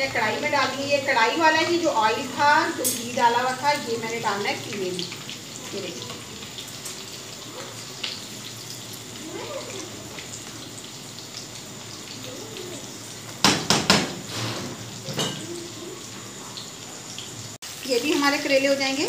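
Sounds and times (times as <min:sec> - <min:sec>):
cookware clanking: 0:13.5 - 0:15.8.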